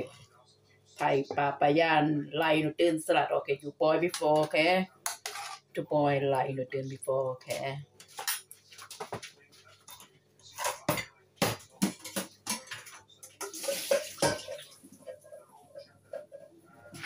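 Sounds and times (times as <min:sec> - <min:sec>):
pots and utensils clattering: 0:04.1 - 0:05.7, 0:08.0 - 0:17.0.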